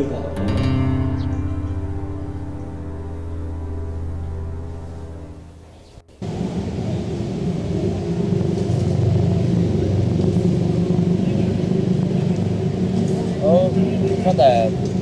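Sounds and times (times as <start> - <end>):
motor vehicle low rumble: 0.0 - 15.0.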